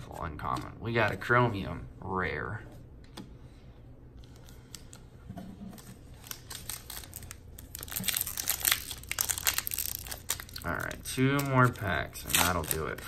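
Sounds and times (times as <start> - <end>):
wrapper tearing and crinkling: 6.1 - 13.0.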